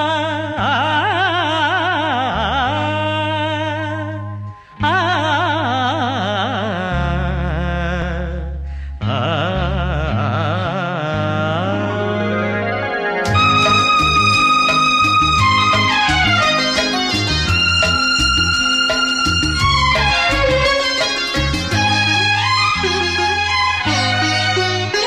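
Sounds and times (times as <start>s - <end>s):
sustained low bass notes: 0.0s - 25.0s
vibrato melody on long notes: 11.5s - 25.0s.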